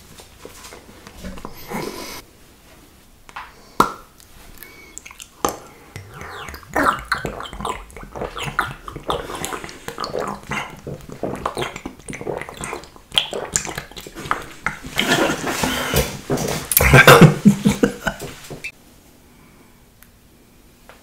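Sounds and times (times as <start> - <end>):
person drinking from bottle: 4.6 - 18.7.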